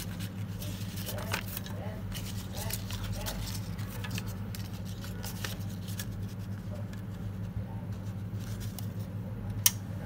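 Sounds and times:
paper banknotes rustling: 0:00.0 - 0:09.1
low electrical hum: 0:00.0 - 0:10.0.

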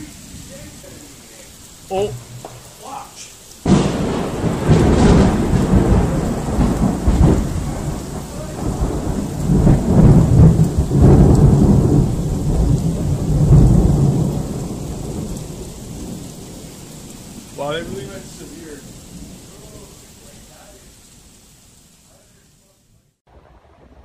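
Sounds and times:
thunder clap and rumble: 0:02.1 - 0:21.0.

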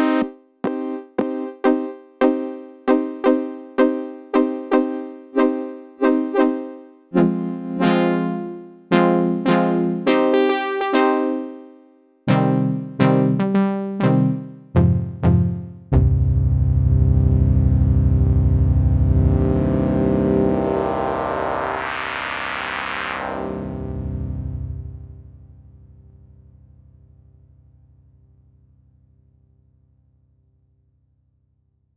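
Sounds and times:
synthesizer notes: 0:12.3 - 0:25.4
low held synthesizer chord: 0:12.3 - 0:29.8.

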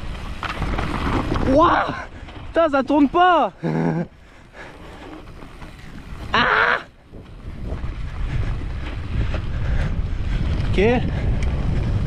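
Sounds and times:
tyres rolling over grass and dirt: 0:00.0 - 0:09.6
wind buffeting microphone: 0:00.0 - 0:12.0
person crying out: 0:06.3 - 0:06.9.

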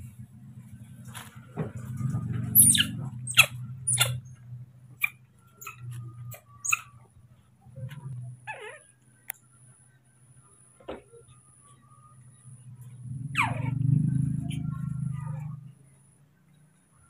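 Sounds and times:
steady low hum: 0:00.0 - 0:17.0
baby monkeys squeaking: 0:02.5 - 0:04.4, 0:05.0 - 0:07.1, 0:08.4 - 0:08.9, 0:13.2 - 0:15.5
low wavering monkey call: 0:05.0 - 0:07.1.

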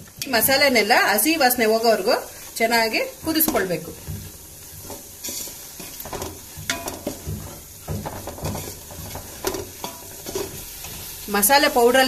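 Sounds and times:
masala sizzling: 0:00.0 - 0:12.0
spatula scraping metal pot: 0:03.2 - 0:11.2.

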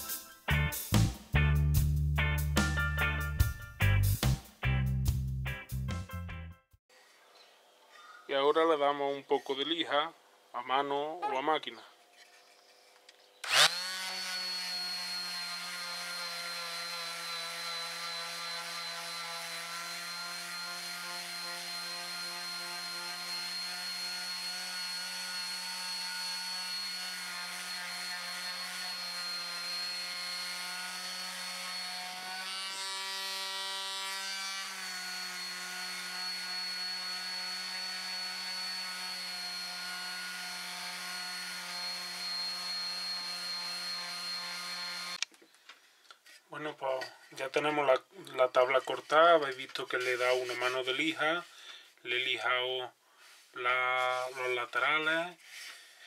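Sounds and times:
electric sander buzzing on wood: 0:13.4 - 0:45.2.

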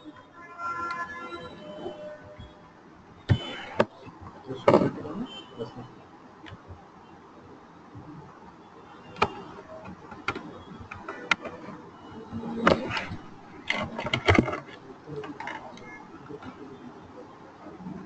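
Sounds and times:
faint room noise: 0:00.0 - 0:18.0
sharp clicks and knocks: 0:12.6 - 0:16.5.

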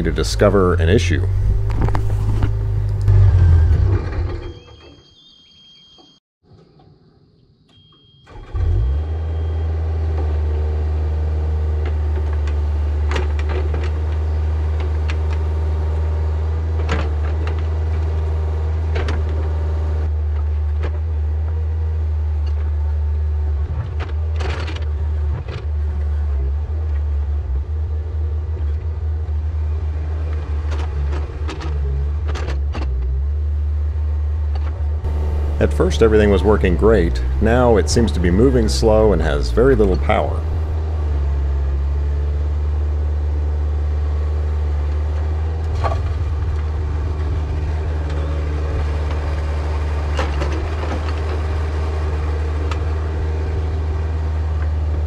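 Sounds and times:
excavator diesel engine running: 0:00.0 - 0:04.0, 0:35.0 - 0:43.3
digging clunks: 0:01.3 - 0:03.4.

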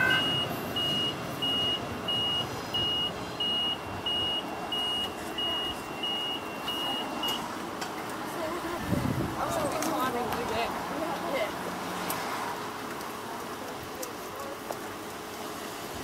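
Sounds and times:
electric train departing: 0:00.0 - 0:08.7.

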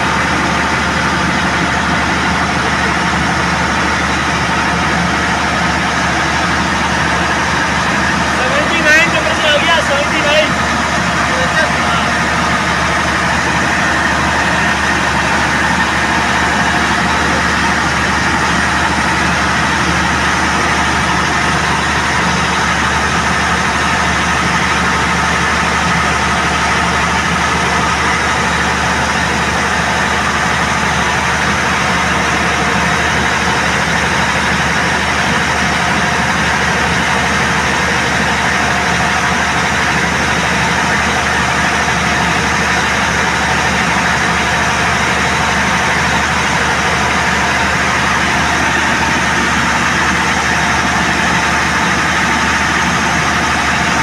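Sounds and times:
diesel generator engine running: 0:00.0 - 0:54.0.

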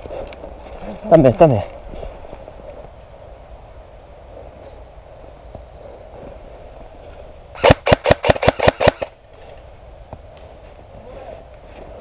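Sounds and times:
airsoft rifle shots: 0:07.6 - 0:09.2.

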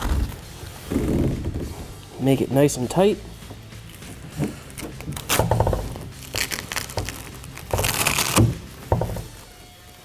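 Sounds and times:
nylon strap rustling and scraping: 0:03.7 - 0:09.3.

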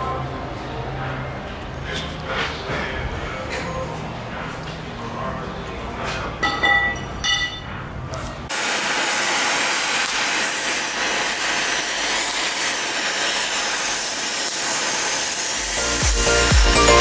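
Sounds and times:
power tool hissing: 0:08.5 - 0:17.0.

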